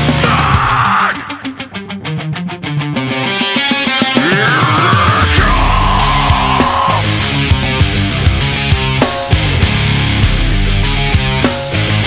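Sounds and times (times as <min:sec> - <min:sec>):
distorted electric guitar: 0:00.0 - 0:12.0
steady drum beat: 0:04.1 - 0:12.0.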